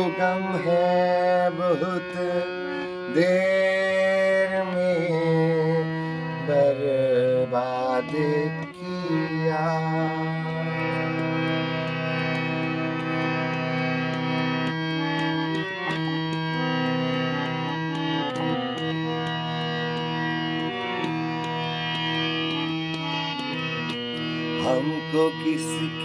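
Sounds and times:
harmonium playing chords: 0:00.0 - 0:26.0.

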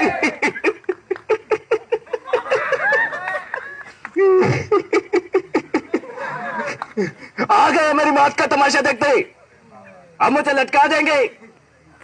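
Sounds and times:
boy laughing theatrically: 0:00.0 - 0:07.5.

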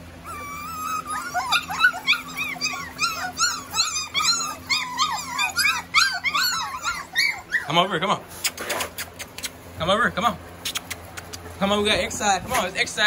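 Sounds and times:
puppies whining and yipping: 0:00.0 - 0:09.7.

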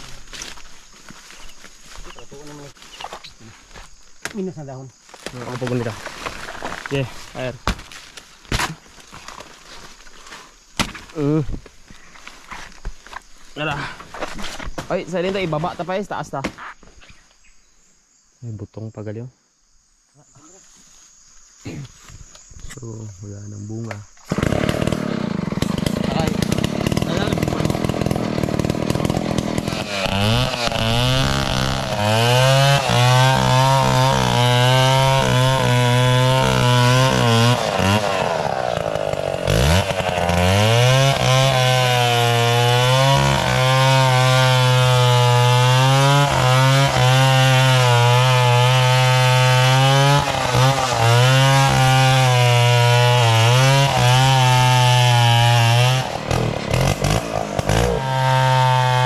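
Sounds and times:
chainsaw running at high revs: 0:24.3 - 0:59.0.

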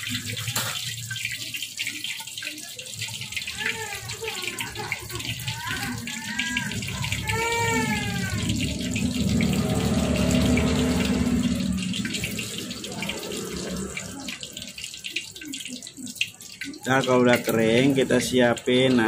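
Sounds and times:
chicken sizzling in hot oil: 0:00.0 - 0:19.0.

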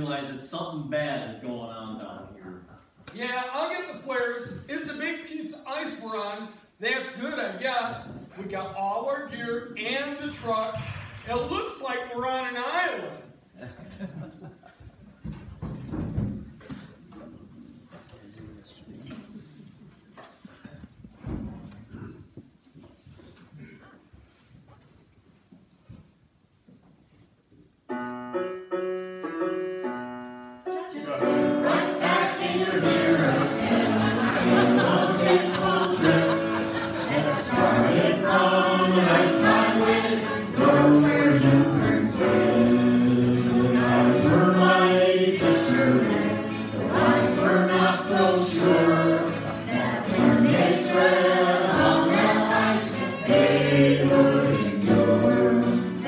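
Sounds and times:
guitar accompaniment: 0:27.9 - 0:56.0
group singing: 0:30.8 - 0:56.0.

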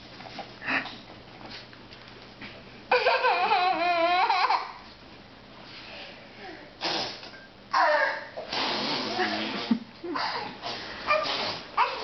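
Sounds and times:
breathy spitting burst: 0:06.8 - 0:07.3, 0:08.5 - 0:11.7
toddler squealing babble: 0:07.8 - 0:08.3, 0:11.1 - 0:12.0.

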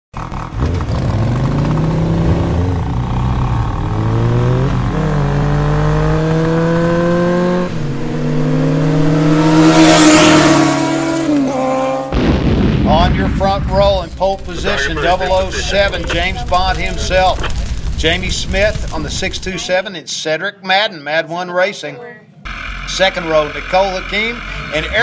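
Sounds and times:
racing engines accelerating: 0:00.2 - 0:12.2, 0:22.5 - 0:25.0.

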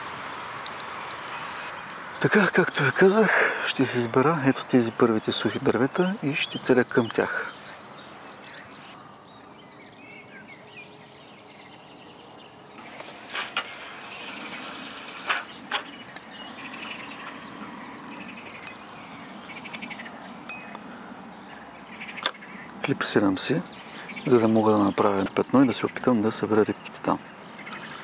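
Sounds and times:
fishing line hissing off reel: 0:12.8 - 0:15.4.

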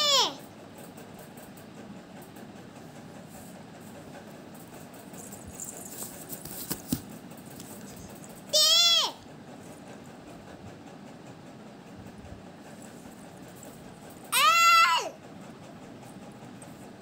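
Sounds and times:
child's loud high call: 0:00.0 - 0:00.4, 0:08.5 - 0:09.2, 0:14.3 - 0:15.2
faint rustles and knocks: 0:00.8 - 0:08.5.

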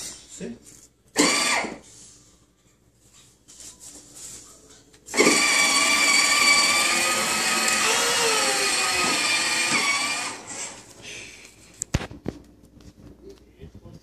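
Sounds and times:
electric motor whining: 0:05.1 - 0:10.8.

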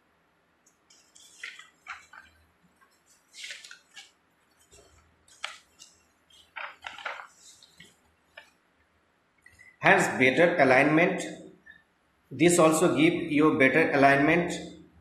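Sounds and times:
paper sheets rustling: 0:00.9 - 0:08.5.

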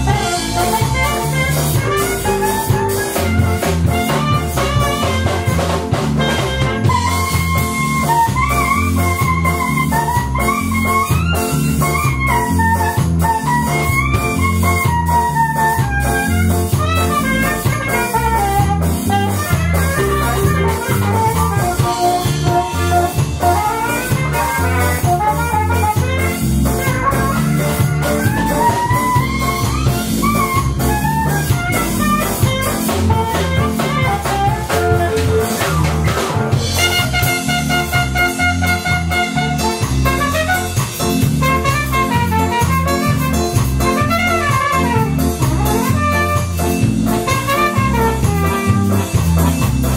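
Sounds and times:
saxophone solo: 0:00.0 - 0:49.8
bass: 0:00.0 - 0:49.9
drum kit: 0:00.0 - 0:49.9
trumpet: 0:00.0 - 0:49.9.

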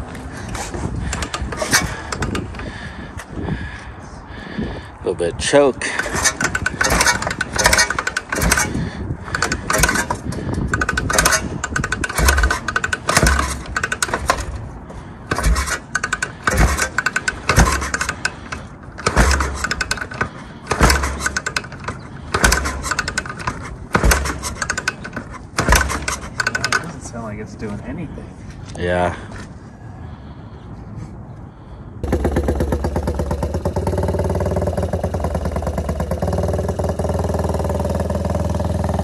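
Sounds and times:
motorcycle kick-start clatter: 0:00.5 - 0:02.8, 0:05.8 - 0:27.0, 0:32.0 - 0:39.0
low engine thud: 0:15.3 - 0:26.6.

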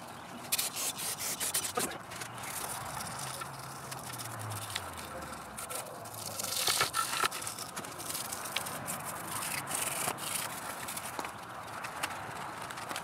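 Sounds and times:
stiff brush scrubbing metal: 0:00.5 - 0:10.6.

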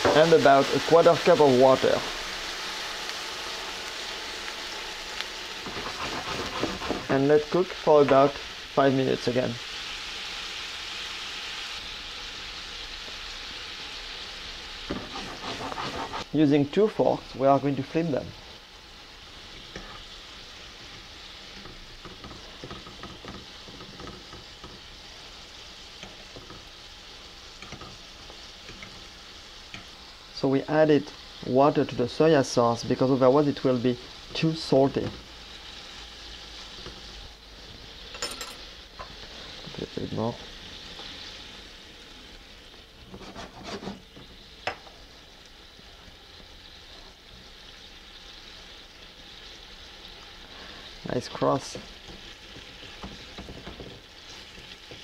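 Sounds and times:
mushrooms sizzling in skillet: 0:00.0 - 0:55.0
water sputtering in hot pan: 0:00.0 - 0:55.0
forks scraping pan: 0:05.6 - 0:07.2, 0:14.9 - 0:16.3, 0:43.1 - 0:44.0.

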